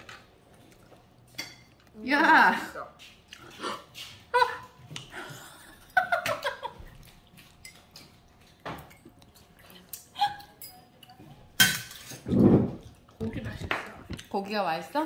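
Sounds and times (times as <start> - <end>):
girl giggling: 4.3 - 6.8.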